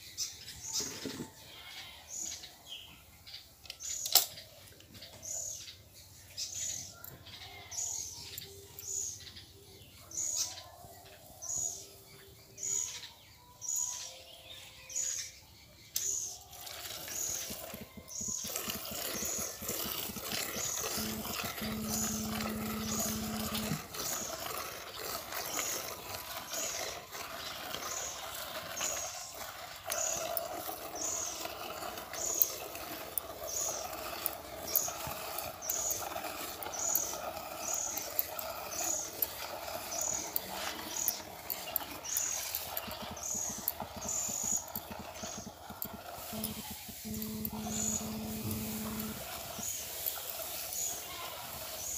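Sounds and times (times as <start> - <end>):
milk squirting into metal pot: 16.4 - 51.9
low steady hum: 20.1 - 23.9, 45.8 - 49.4.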